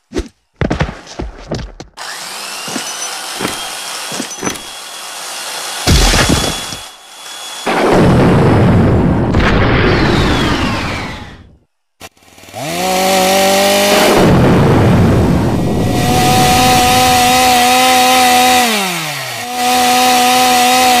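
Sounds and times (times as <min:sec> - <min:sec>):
chainsaw revving: 0:02.0 - 0:07.9, 0:12.0 - 0:21.0.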